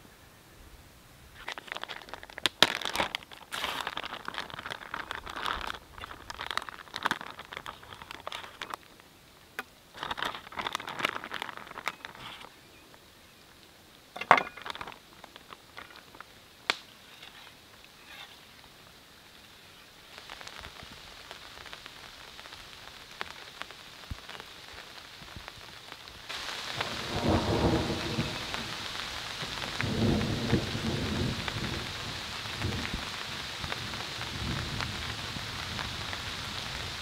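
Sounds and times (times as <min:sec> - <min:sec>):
plastic packaging crinkling: 0:01.4 - 0:09.0, 0:09.9 - 0:12.5, 0:14.3 - 0:16.2.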